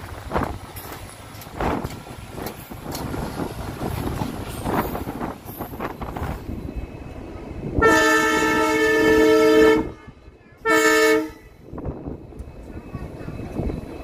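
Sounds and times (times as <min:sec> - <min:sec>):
train rumbling along track: 0:00.0 - 0:14.0
locomotive horn blasts: 0:07.8 - 0:11.5.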